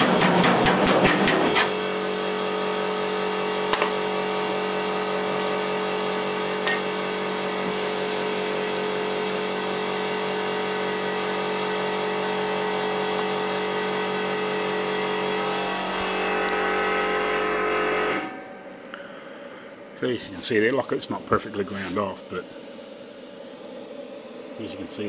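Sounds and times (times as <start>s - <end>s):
grinder grinding metal: 2.9s - 7.1s, 10.3s - 18.8s.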